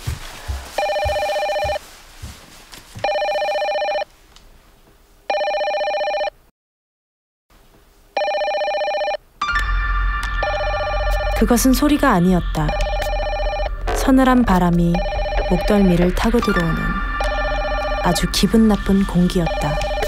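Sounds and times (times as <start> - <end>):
electronic telephone ringing: 0.8 - 1.8, 3.1 - 4.1, 5.3 - 6.4, 8.2 - 9.2, 12.7 - 13.8, 14.9 - 18.4, 19.4 - 20.0.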